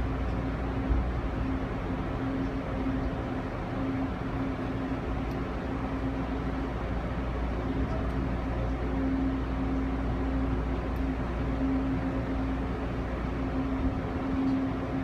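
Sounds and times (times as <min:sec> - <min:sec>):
train cabin rumble and hiss: 0:00.0 - 0:15.0.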